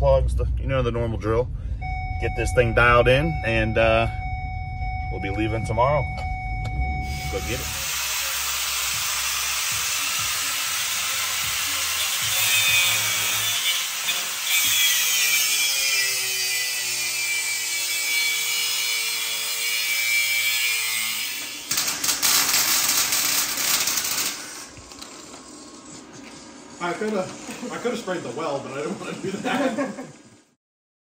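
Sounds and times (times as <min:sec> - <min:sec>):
angle grinder grinding metal: 0:07.1 - 0:24.8
harsh rapid crackling: 0:21.7 - 0:25.1.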